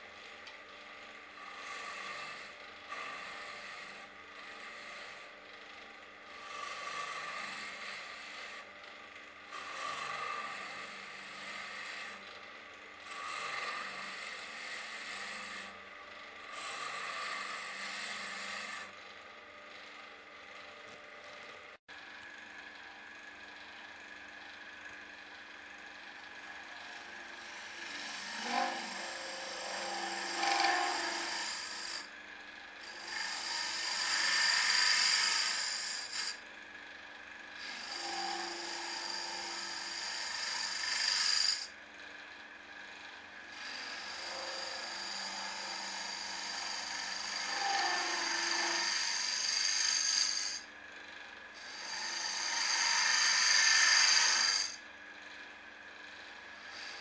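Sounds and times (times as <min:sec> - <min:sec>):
turning tool scraping wood: 0:00.0 - 0:08.7, 0:09.5 - 0:12.3, 0:13.0 - 0:19.0, 0:26.7 - 0:32.1, 0:32.8 - 0:36.4, 0:37.6 - 0:41.8, 0:43.5 - 0:50.7, 0:51.6 - 0:54.8, 0:56.6 - 0:57.0
lathe humming: 0:00.0 - 0:57.0.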